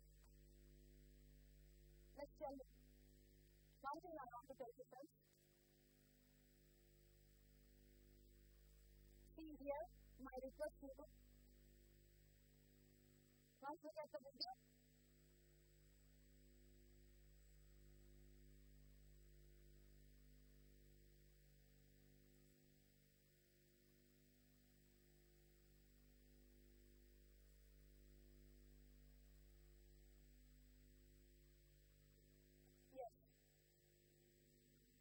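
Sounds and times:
faint electrical mains hum: 0:00.0 - 0:35.0.

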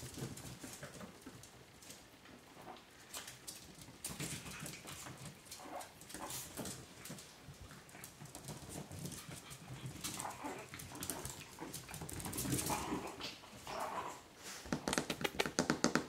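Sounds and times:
small claws clicking on tiles: 0:14.7 - 0:16.0.

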